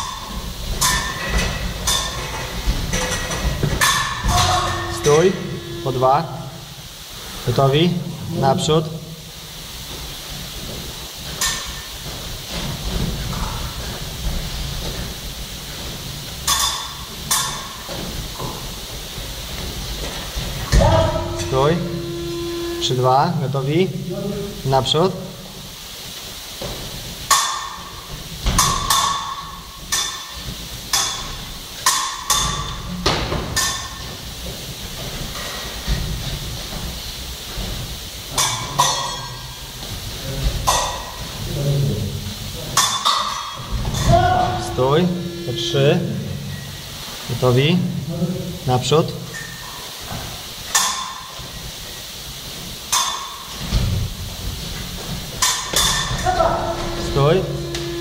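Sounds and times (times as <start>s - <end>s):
fencing blades clashing: 0.0s - 6.1s
footwork thuds: 9.5s - 22.2s.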